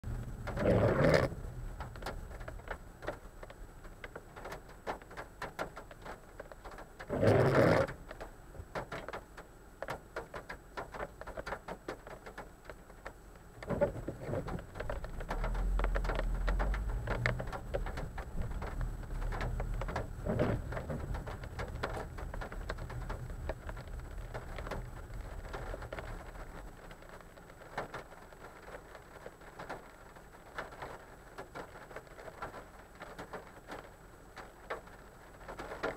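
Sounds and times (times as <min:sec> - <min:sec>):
rumble of thunder: 0:00.1 - 0:02.1
raindrops ticking on glass: 0:00.2 - 0:35.9.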